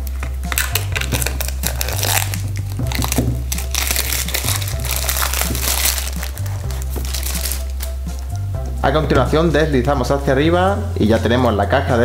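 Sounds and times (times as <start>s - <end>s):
plastic shrink wrap crinkling: 0.0s - 8.3s
background music with bass line: 0.0s - 12.0s.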